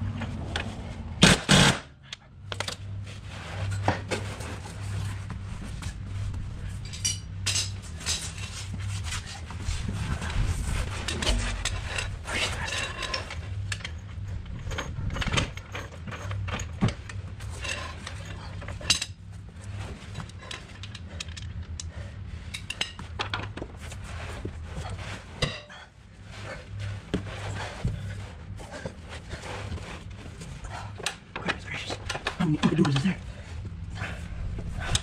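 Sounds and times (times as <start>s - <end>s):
steady low hum: 0.0s - 35.0s
metal tools clinking: 6.8s - 8.6s, 11.0s - 19.2s.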